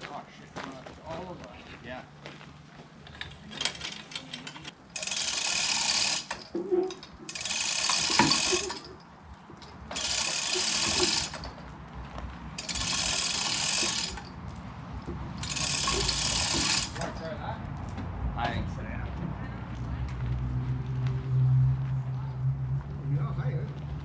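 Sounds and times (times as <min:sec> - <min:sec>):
chain hoist hand chain rattling: 0:03.2 - 0:11.6, 0:12.6 - 0:14.4, 0:15.4 - 0:17.3.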